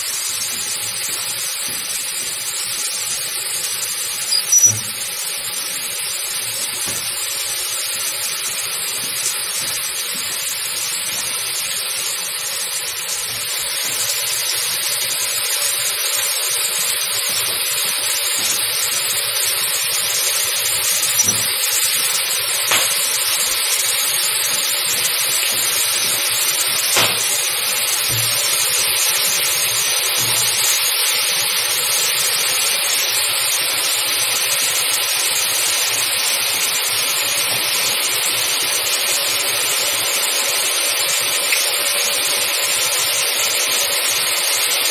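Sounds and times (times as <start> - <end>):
hot metal sizzling on ice: 0.0 - 44.9.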